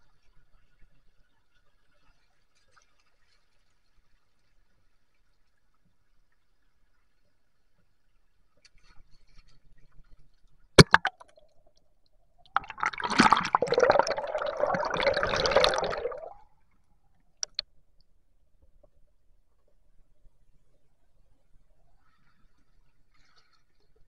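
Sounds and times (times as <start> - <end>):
stream water splashing and gurgling: 10.8 - 11.3, 12.6 - 16.4.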